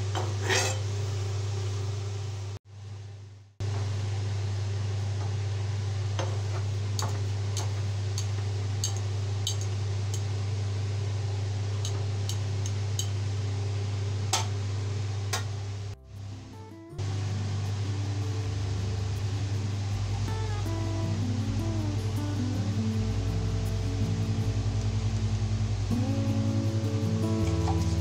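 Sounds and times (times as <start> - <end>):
steady low hum: 0.0 - 28.0
metal spatula scraping frying pan: 0.2 - 0.9.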